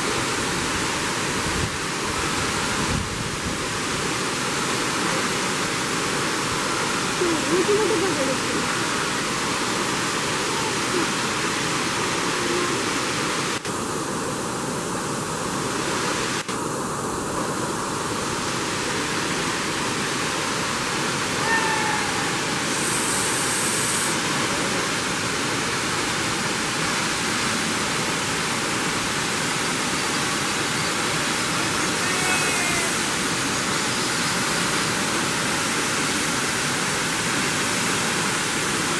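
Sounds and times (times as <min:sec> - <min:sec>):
waterfall rushing: 0:00.0 - 0:38.9.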